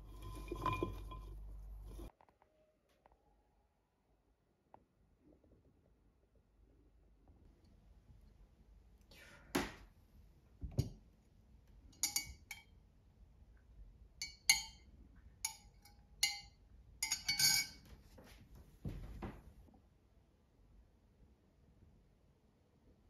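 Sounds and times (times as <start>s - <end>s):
teaspoon clinking against glass mug: 12.0s - 12.7s, 15.5s - 17.8s.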